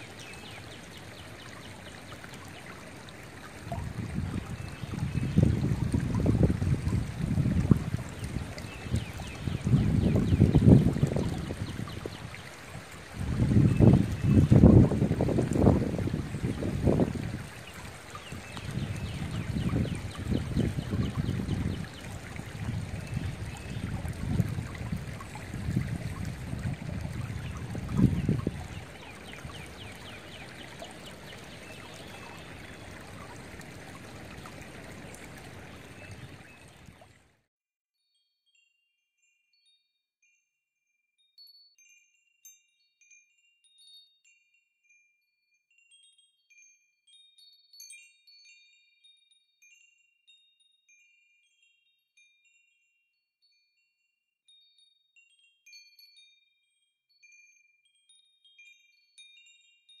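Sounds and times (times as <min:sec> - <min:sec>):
creek water running over rocks: 0:00.0 - 0:37.3
high tinkling chime notes: 0:41.3 - 1:00.0.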